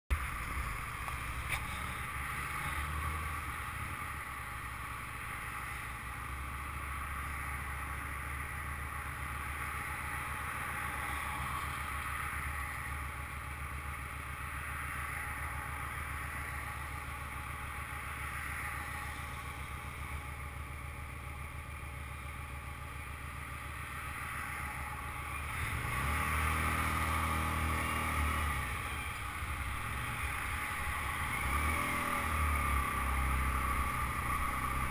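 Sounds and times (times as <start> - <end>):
motorcycle engine rumbling: 0.1 - 34.9
road noise: 0.1 - 34.9.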